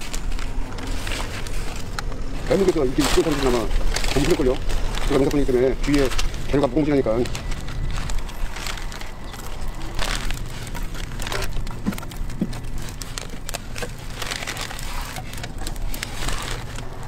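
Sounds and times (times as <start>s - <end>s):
fire crackling: 0.0s - 17.0s
wood snapping and knocking: 7.4s - 17.0s.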